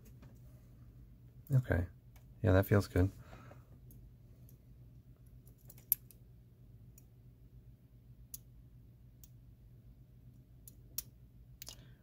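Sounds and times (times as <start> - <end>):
low steady hum: 0.0 - 12.0
lock pick metallic clicks: 5.5 - 6.2, 10.6 - 11.8.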